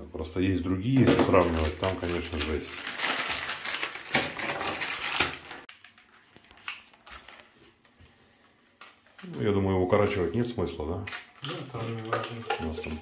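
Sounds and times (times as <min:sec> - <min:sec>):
plastic parts clicking and clattering: 0:01.0 - 0:07.5, 0:11.0 - 0:13.0.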